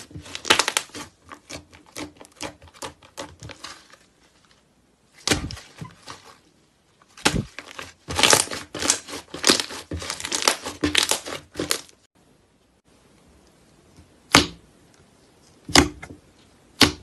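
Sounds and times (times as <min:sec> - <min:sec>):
slime crackling and popping: 0:00.2 - 0:03.8, 0:07.2 - 0:12.0.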